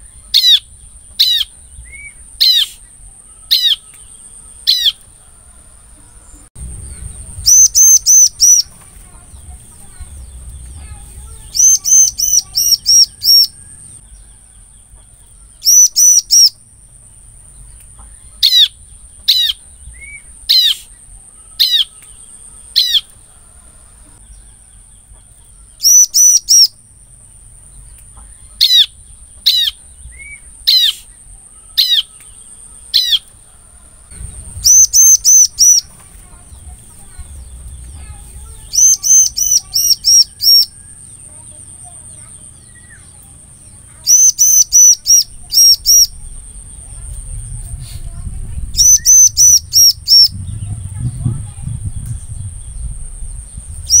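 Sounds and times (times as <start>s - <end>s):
bird calling: 0.0s - 14.1s, 25.2s - 47.1s, 48.1s - 51.6s.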